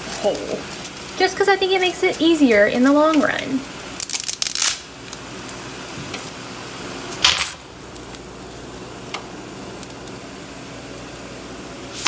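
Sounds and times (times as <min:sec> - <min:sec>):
pot boiling hiss: 0:00.0 - 0:12.0
dry pasta snapping: 0:04.0 - 0:06.4, 0:07.2 - 0:10.2.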